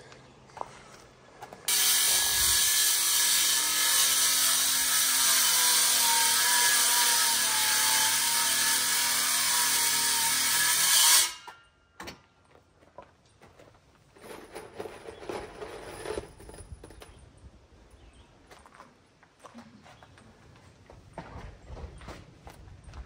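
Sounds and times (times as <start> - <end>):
power saw cutting wood: 1.7 - 11.6.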